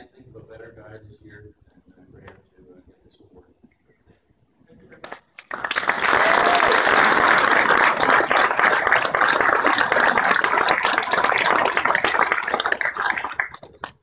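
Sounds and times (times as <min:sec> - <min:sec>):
audience applauding: 0:05.0 - 0:14.0.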